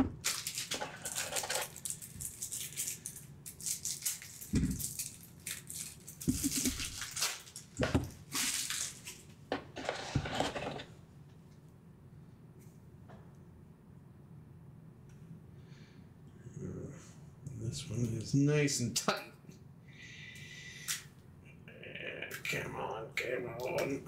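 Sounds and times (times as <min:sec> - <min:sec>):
plastic wrap crinkling: 0:00.2 - 0:09.3.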